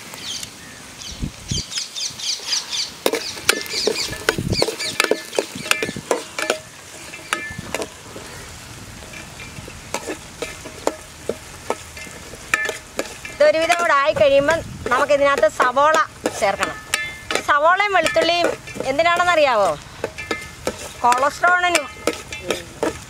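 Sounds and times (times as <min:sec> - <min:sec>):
soft sizzle of frying: 0:00.0 - 0:23.0
spoon scraping in metal pot: 0:03.0 - 0:14.0, 0:14.8 - 0:23.0
metallic clinks: 0:16.6 - 0:19.3.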